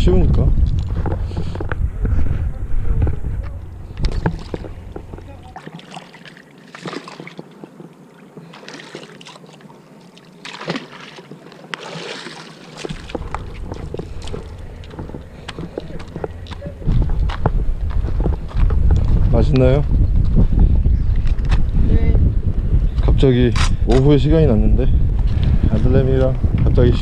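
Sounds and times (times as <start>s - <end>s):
wind buffeting microphone: 0.0s - 5.6s, 12.8s - 27.0s
bucket splashing in water: 5.5s - 7.6s, 8.4s - 14.9s
bucket and rope clicking: 10.5s - 18.8s.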